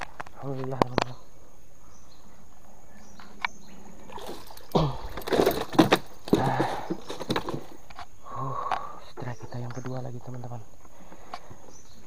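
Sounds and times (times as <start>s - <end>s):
fish thrashing and splashing: 4.0s - 7.8s.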